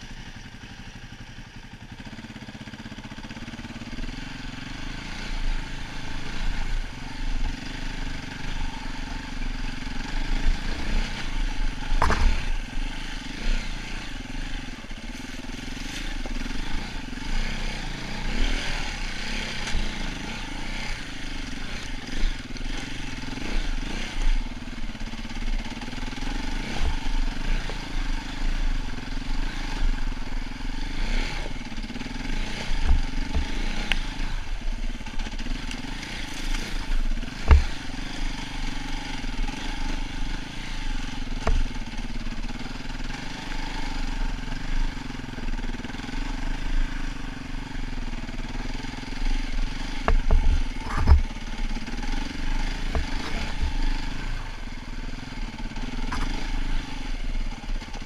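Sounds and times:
dirt bike engine running: 0:00.0 - 0:58.0
bike knocking against stones: 0:11.9 - 0:12.6, 0:37.4 - 0:37.8, 0:50.0 - 0:51.3.

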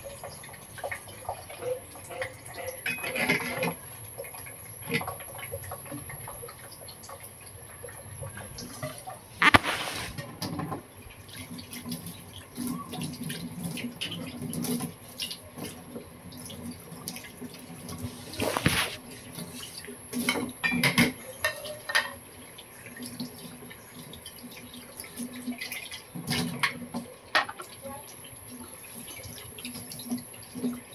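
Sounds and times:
metal ladle scraping pan: 0:09.4 - 0:10.2.

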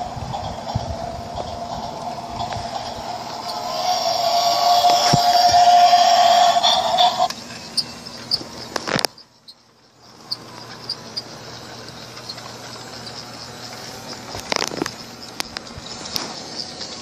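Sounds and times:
toy train motor whirring: 0:00.0 - 0:17.0
light regular clicking: 0:10.3 - 0:17.0.

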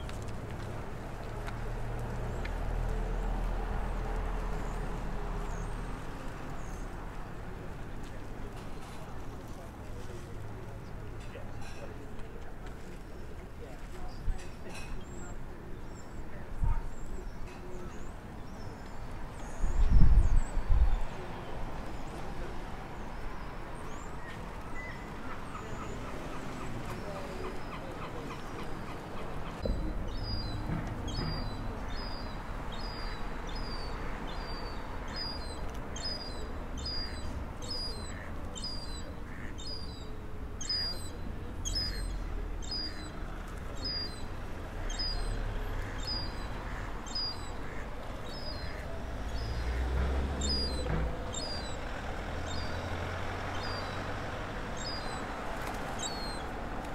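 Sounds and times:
young gulls calling: 0:24.7 - 0:56.9.

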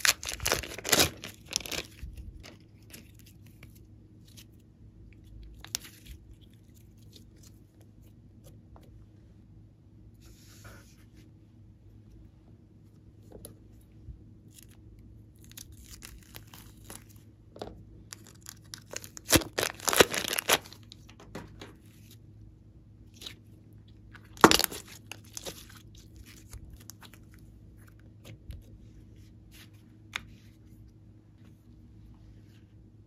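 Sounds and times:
slime crackling and tearing: 0:00.0 - 0:04.5, 0:14.5 - 0:17.2, 0:18.1 - 0:20.9, 0:24.2 - 0:27.9.

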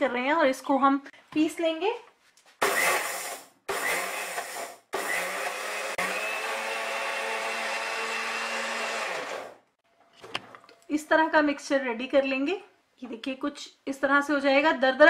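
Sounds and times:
mixer grinder grinding: 0:02.6 - 0:09.6.

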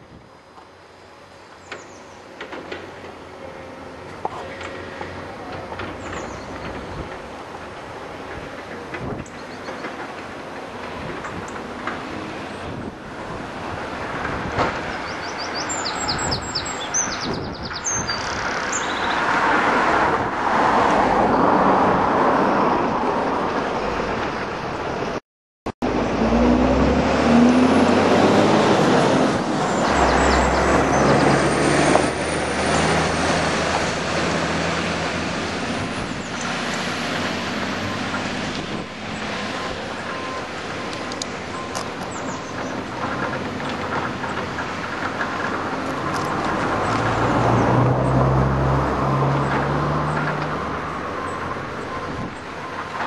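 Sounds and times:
excavator engine: 0:00.0 - 0:16.0, 0:25.8 - 0:53.0
bird chirps: 0:14.9 - 0:19.2.

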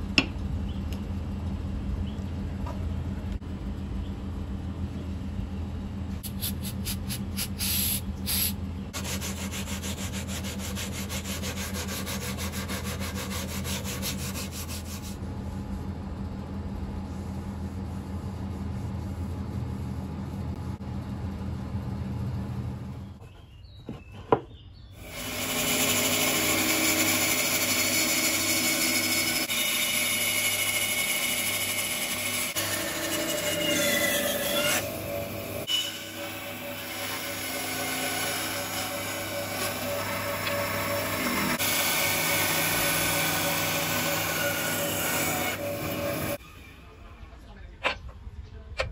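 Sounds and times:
low machine hum: 0:00.0 - 0:48.9
sanding a steel blade: 0:09.0 - 0:15.2
bandsaw cutting horn: 0:25.0 - 0:46.4.

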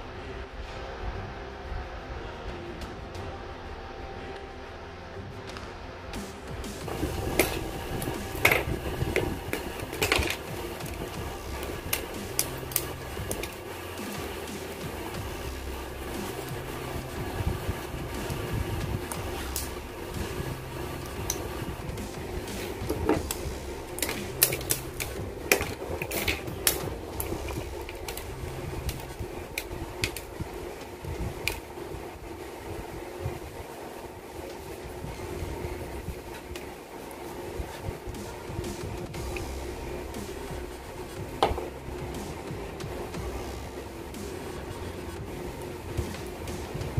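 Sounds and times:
steady hum: 0:00.0 - 0:46.9
side cutters clicking: 0:06.2 - 0:31.7
nippers snipping plastic: 0:06.8 - 0:31.7.

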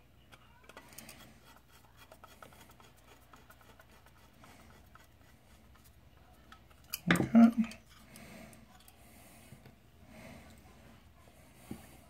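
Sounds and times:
screwdriver clicking and scratching: 0:00.6 - 0:07.0.

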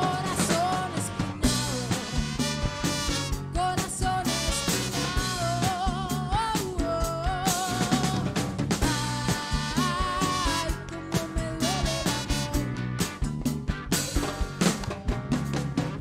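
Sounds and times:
woman singing with vibrato: 0:00.0 - 0:02.6, 0:03.4 - 0:12.7
bass guitar: 0:00.0 - 0:16.0
drum kit: 0:00.0 - 0:16.0
electric guitar: 0:00.0 - 0:16.0
timbales and congas: 0:00.0 - 0:16.0.

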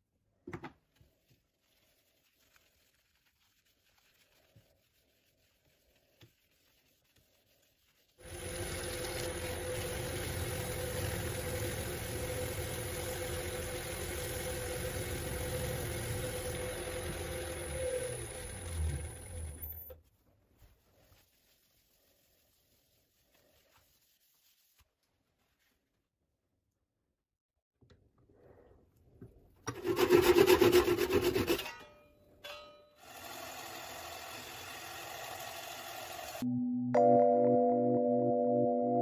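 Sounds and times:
cloth rubbing on bowl: 0:01.0 - 0:11.2, 0:20.0 - 0:25.9
wood lathe motor hum: 0:08.2 - 0:19.8, 0:33.0 - 0:36.4.

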